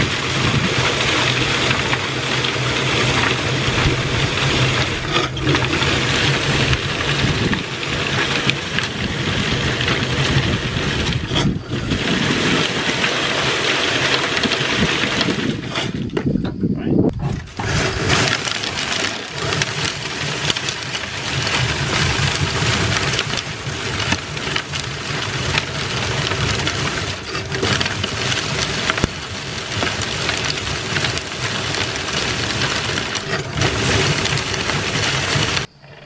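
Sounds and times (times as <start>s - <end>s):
drum thresher rattling pods: 0.0s - 36.0s.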